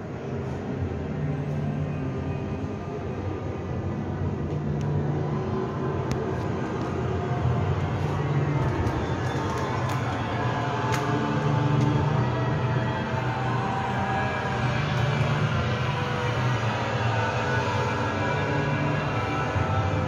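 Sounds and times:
low rumbling drone: 0.0 - 20.0.

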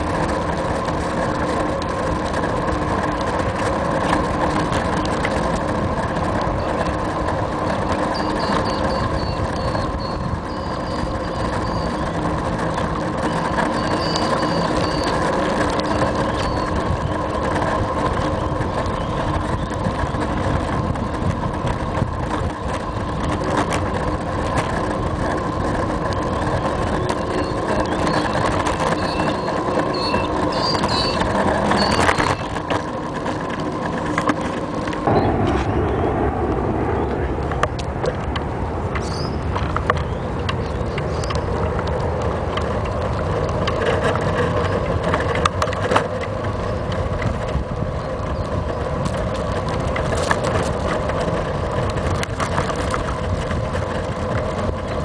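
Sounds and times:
bicycle rolling on pavement: 0.0 - 55.0
bicycle bump: 37.5 - 55.0.

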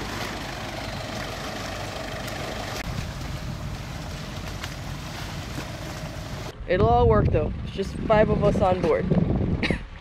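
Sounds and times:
engine idling: 0.0 - 6.6.

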